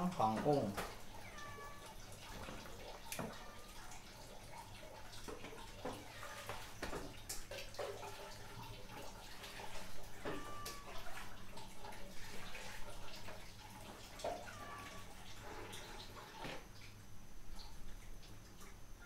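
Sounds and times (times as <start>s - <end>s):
soup boiling and bubbling: 0.0s - 19.0s.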